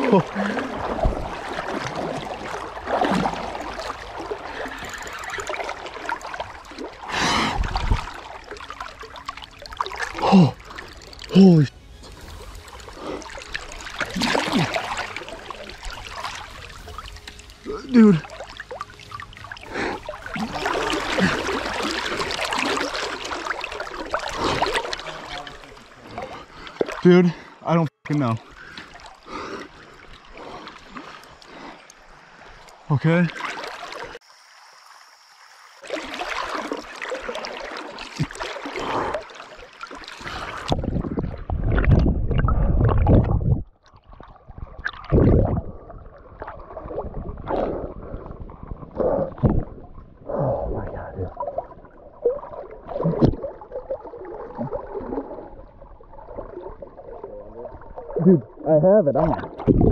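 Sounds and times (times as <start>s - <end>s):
river water sloshing around wader: 0.0s - 59.9s
muffled underwater rumbling: 40.3s - 59.9s.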